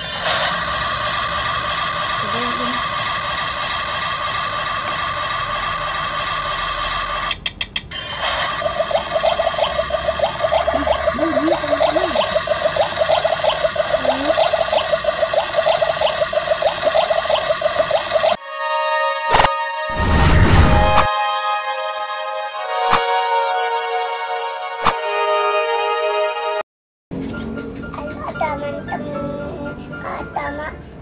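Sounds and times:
fast electronic pulsing: 0.0 - 7.4, 8.0 - 18.4.

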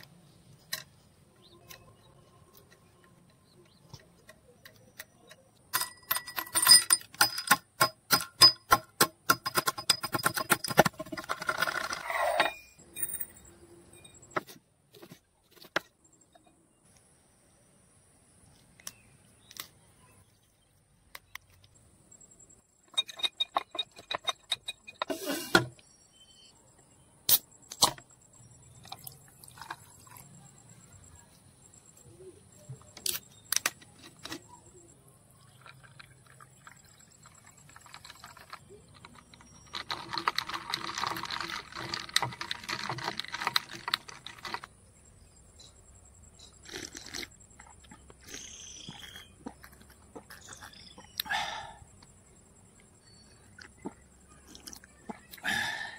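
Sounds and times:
sharp clicks and knocks: 1.6 - 12.6.

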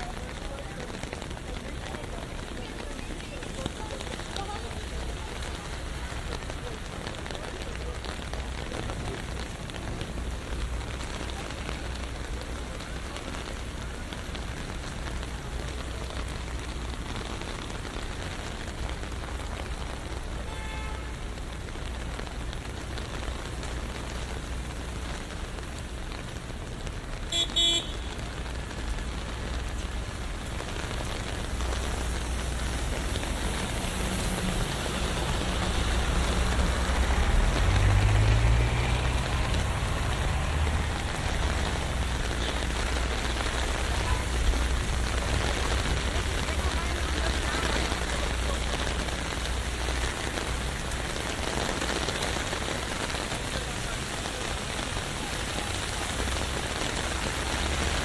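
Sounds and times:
rain pattering on an umbrella: 0.0 - 58.0
street traffic: 0.0 - 58.0
car horn toot: 20.4 - 21.2, 27.3 - 28.2
low vehicle rumble: 21.1 - 58.0.

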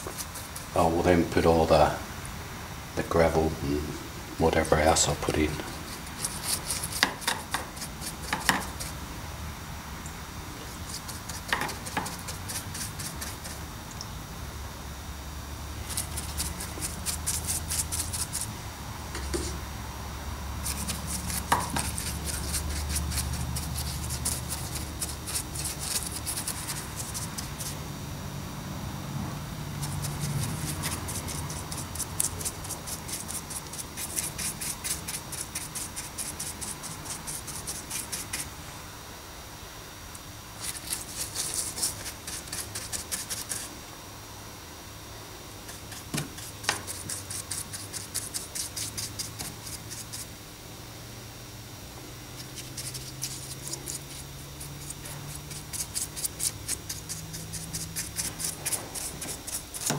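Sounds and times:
paintbrush scrubbing: 0.0 - 1.6, 4.4 - 9.0, 10.6 - 13.7, 15.8 - 18.5, 19.2 - 19.6, 20.6 - 27.8, 29.7 - 38.5, 40.6 - 43.7, 45.7 - 50.3, 52.4 - 59.9.

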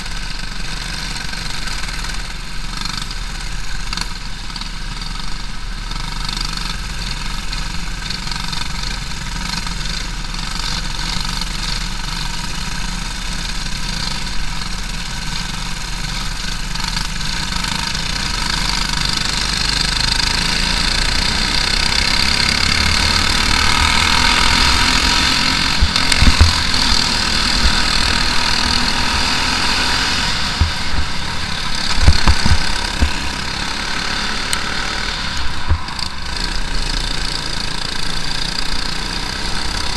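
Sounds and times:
kart engine racing: 0.0 - 39.9
other karts nearby: 0.0 - 39.9
sharp low thumps: 23.0 - 29.6, 30.4 - 33.5.

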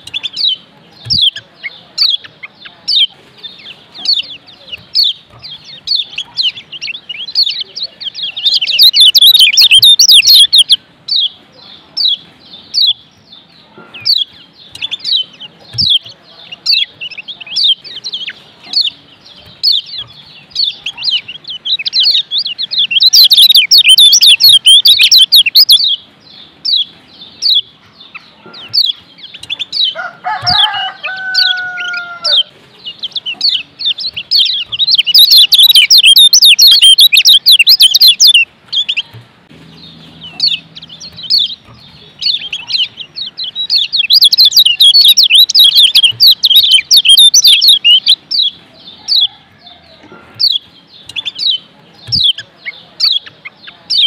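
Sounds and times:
bird chattering song: 0.0 - 54.0
bird chirping: 0.0 - 54.0
low drawn-out bird call: 5.9 - 11.3, 33.4 - 54.0.

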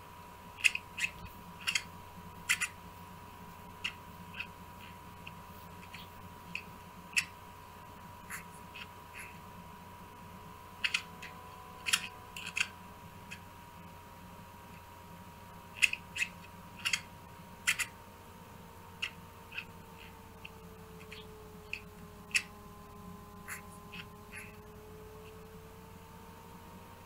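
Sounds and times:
faint hum with high tone: 0.0 - 27.0.

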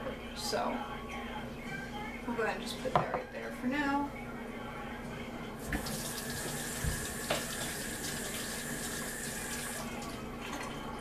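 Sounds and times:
kitchen faucet running into sink: 5.7 - 10.8.

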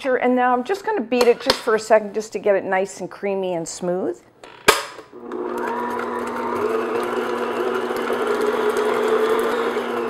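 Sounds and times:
paddle beating butter: 5.2 - 10.0
stand mixer motor humming: 5.2 - 10.0.

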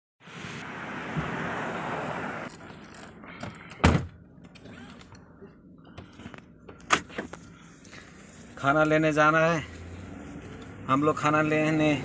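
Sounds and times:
car door thudding shut: 3.8 - 4.2.

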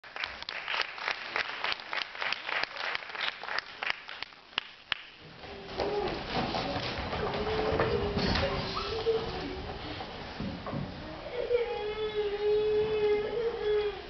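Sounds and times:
audience clapping: 0.0 - 5.5.

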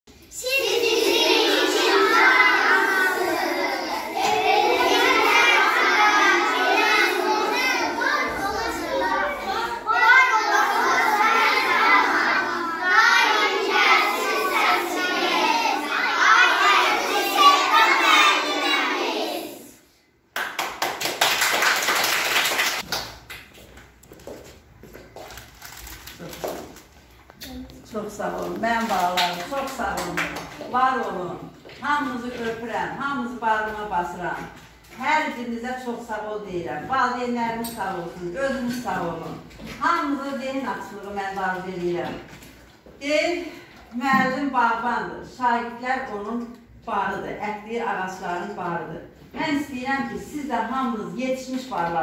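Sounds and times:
children reciting together: 0.2 - 20.0
schoolchildren's voices in chorus: 0.3 - 19.8
people clapping: 20.3 - 23.9.

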